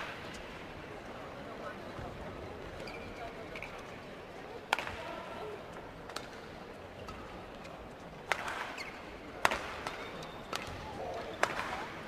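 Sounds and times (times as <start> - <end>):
rackets striking shuttlecock: 8.3 - 11.9.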